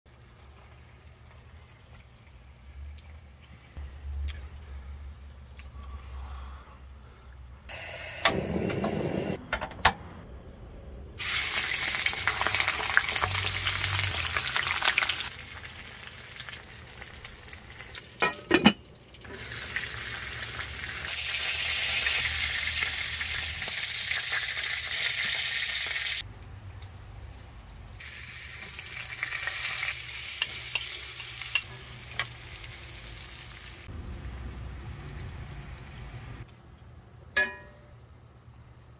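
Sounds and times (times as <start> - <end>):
meat sizzling in a skillet: 11.2 - 18.0, 19.4 - 26.2, 28.0 - 33.9.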